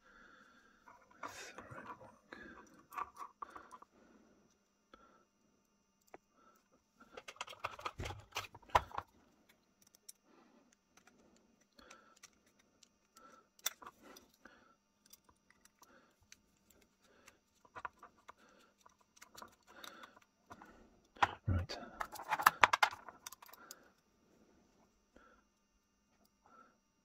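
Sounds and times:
metal parts clicking and scraping: 0.9 - 3.9, 7.2 - 10.2, 11.0 - 14.4, 15.0 - 20.6, 22.0 - 24.0.

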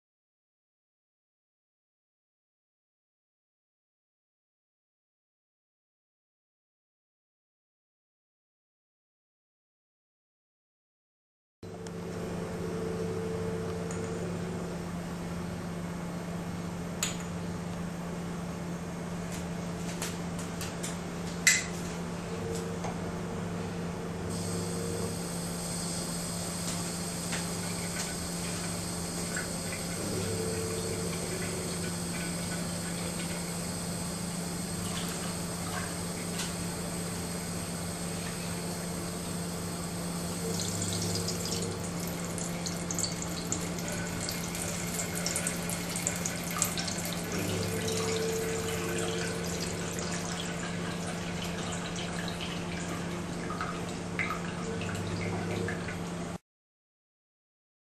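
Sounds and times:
low hum: 22.1 - 56.0
tap water running into a sink: 40.4 - 56.0.

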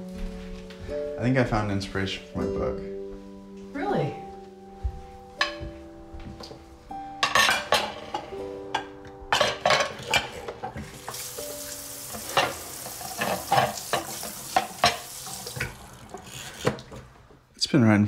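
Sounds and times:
soft background music: 0.0 - 18.0
dishes and cutlery clinking: 5.4 - 6.6, 7.2 - 15.8
tap running: 10.6 - 17.4.

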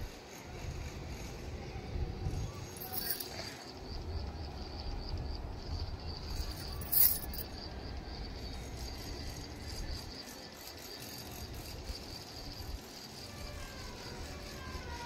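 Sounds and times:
insects chirping: 0.0 - 15.0
sharp rattle: 2.8 - 3.7, 6.2 - 7.6.

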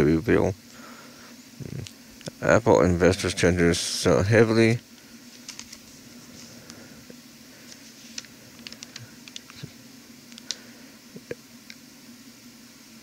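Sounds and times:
steady low hum: 0.0 - 13.0
faint clicks and taps: 7.7 - 10.6.

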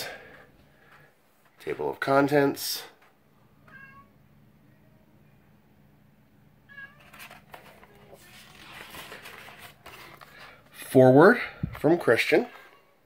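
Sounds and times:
cat meowing: 3.6 - 4.1, 6.7 - 7.2
book page rustling: 7.0 - 10.9.

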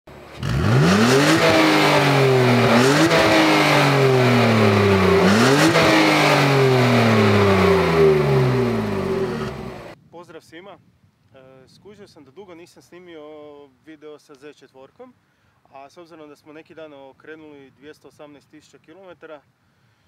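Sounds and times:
car engine revving: 0.1 - 10.0.

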